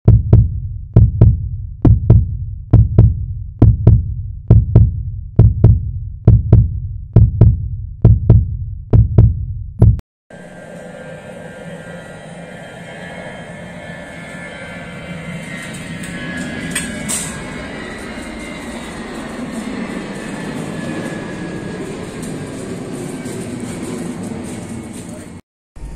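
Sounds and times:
deep thudding heartbeat-like beats: 0.0 - 10.0
airliner engines running: 10.3 - 25.9
airport ambience rumble: 10.3 - 25.9.

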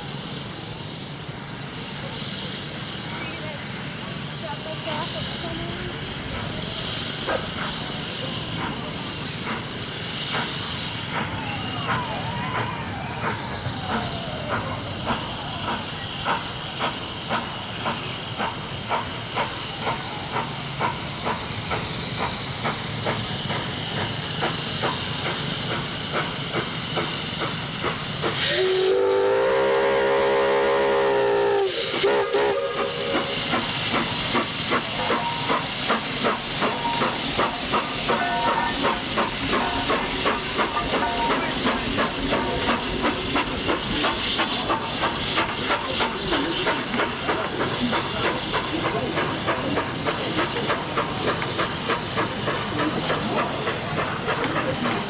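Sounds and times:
steam hissing: 0.0 - 55.0
steam locomotive chuffing: 0.0 - 55.0
steam whistle: 28.4 - 33.4, 38.1 - 38.8.

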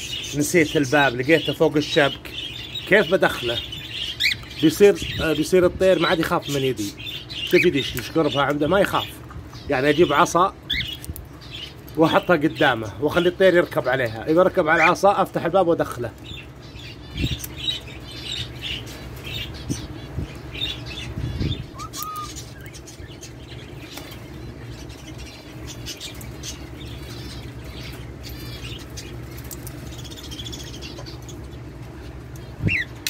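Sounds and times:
steady low hum: 0.0 - 33.0
short high bird chirps: 21.4 - 22.7
birds fluttering wings against cage: 25.8 - 30.6.

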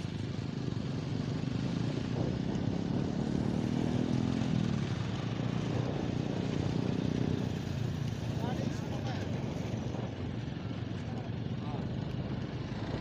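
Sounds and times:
motorcycle engine running: 0.0 - 13.0
road noise: 0.0 - 13.0.

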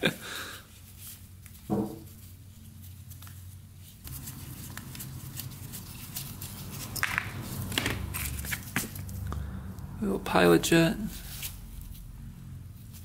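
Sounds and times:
glove handling rustle and ticks: 0.7 - 9.2
low steady hum: 1.2 - 13.0.

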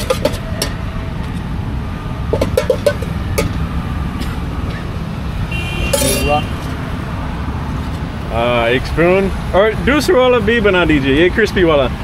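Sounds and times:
road traffic rumble: 0.0 - 12.0
spoon clinking on metal pan: 5.9 - 6.3.

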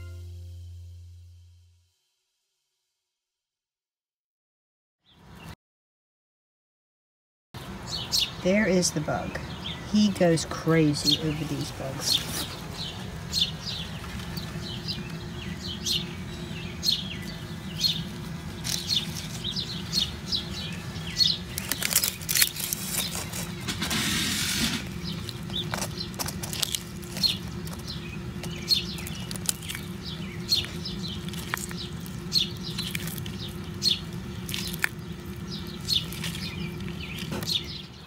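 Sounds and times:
steady low hum: 0.0 - 1.8, 8.4 - 38.0
small birds chirping: 7.6 - 23.7, 24.8 - 38.0
rustling buzz: 17.2 - 38.0.

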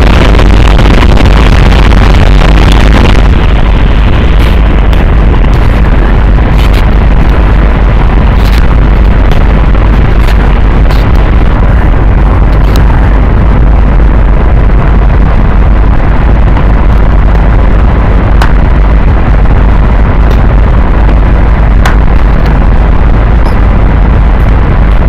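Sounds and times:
deep rumbling low end: 0.0 - 25.0
harsh distorted electronic noise: 0.0 - 25.0.

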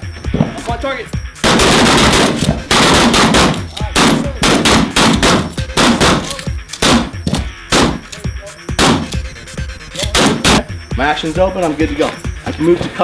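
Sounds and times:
shotgun shots: 1.4 - 8.1, 8.8 - 9.2, 10.0 - 10.7.

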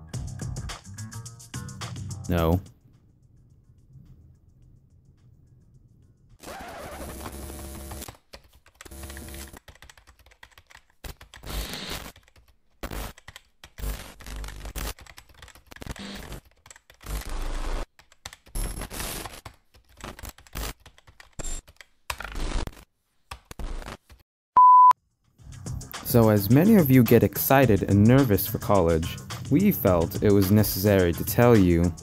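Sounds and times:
computer keyboard typing: 8.0 - 22.3.

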